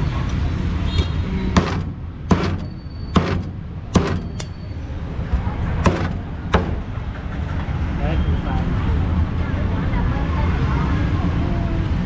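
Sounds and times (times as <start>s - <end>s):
cleaver chopping on wooden block: 1.6s - 4.3s, 5.8s - 6.8s.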